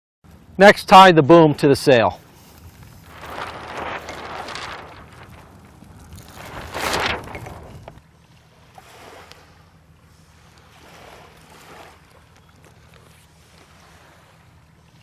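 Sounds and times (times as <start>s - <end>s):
rope clicks and rustles: 2.4s - 8.0s
wind noise on the microphone: 2.5s - 8.0s.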